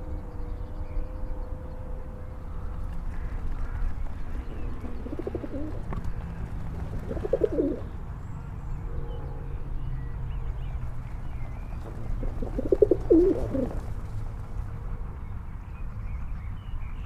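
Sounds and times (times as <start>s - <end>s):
low background rumble: 0.0s - 8.4s, 10.6s - 17.0s
pigeons cooing: 4.6s - 7.9s, 11.9s - 13.9s.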